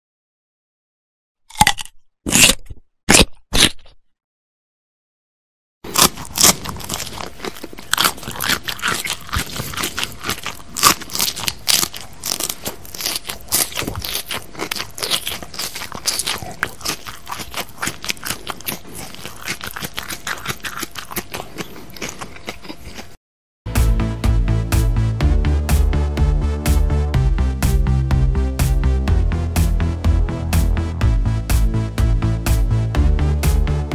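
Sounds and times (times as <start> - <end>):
person chewing crunchy food: 1.5 - 4.0, 5.9 - 23.2.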